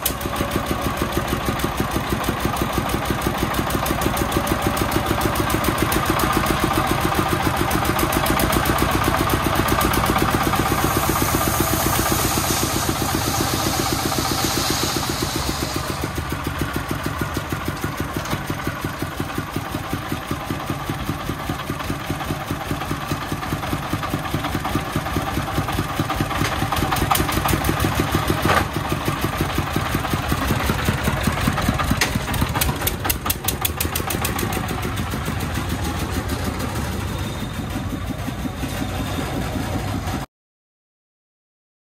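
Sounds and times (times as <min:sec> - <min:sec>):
diesel engine chugging: 0:00.0 - 0:40.3
rushing hiss: 0:09.8 - 0:16.8.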